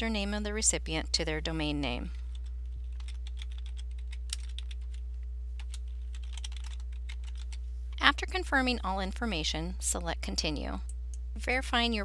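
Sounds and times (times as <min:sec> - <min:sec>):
steady low hum: 0:00.0 - 0:12.0
computer keyboard typing: 0:02.4 - 0:05.0, 0:05.6 - 0:07.6.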